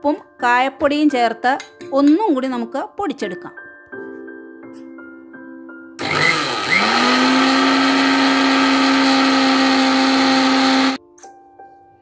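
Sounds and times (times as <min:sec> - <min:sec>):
mixer grinder motor grinding: 0:06.0 - 0:11.0.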